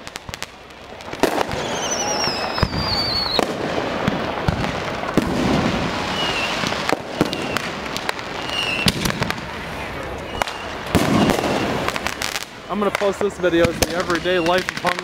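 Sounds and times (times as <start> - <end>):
fireworks crackling and popping: 0.0 - 15.0
firework bang: 1.1 - 9.6, 10.3 - 15.0
falling firework whistle: 1.2 - 9.4, 10.2 - 12.4, 13.9 - 15.0.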